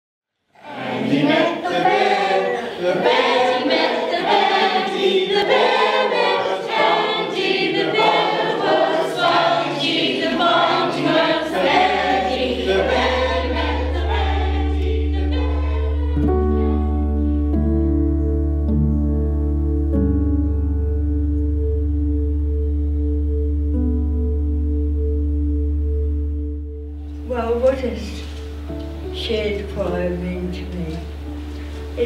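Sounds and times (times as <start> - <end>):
choir singing: 0.6 - 18.0
background music held notes: 0.6 - 32.0.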